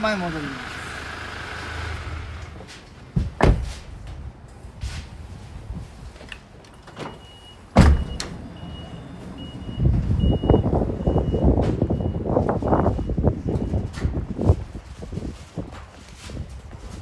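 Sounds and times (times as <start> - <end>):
sharp thump: 3.2 - 3.8, 7.8 - 8.2
door warning buzzer beeps: 6.7 - 12.2.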